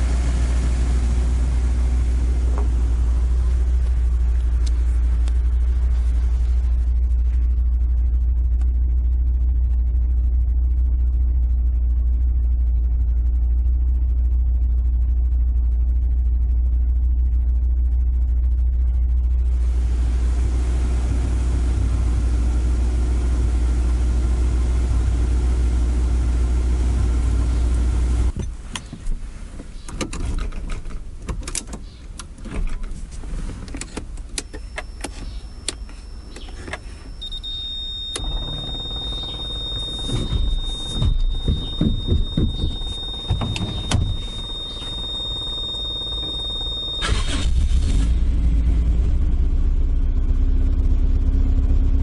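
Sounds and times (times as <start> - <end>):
car engine idling: 0.0 - 52.0
low uneven engine rumble: 0.0 - 52.0
clicks and knocks in car cabin: 28.3 - 36.9, 38.0 - 46.8
high electronic tone: 34.9 - 47.7.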